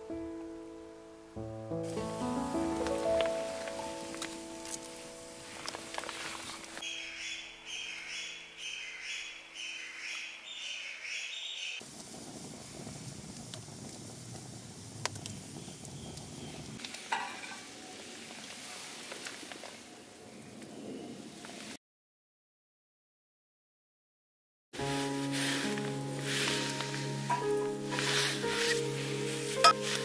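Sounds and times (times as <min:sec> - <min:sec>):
wood fire crackling: 0:01.4 - 0:06.9, 0:11.8 - 0:19.9, 0:24.8 - 0:30.0.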